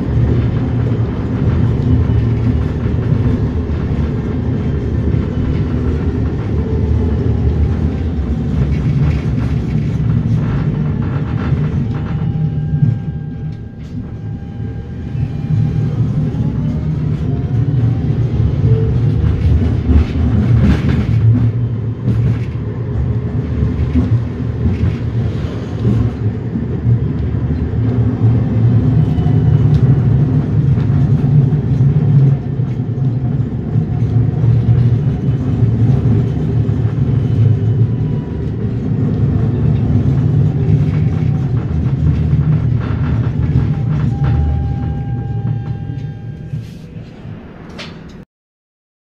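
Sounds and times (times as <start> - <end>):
tram wheels rumbling on rail: 0.0 - 48.2
light track clicks: 38.4 - 48.2.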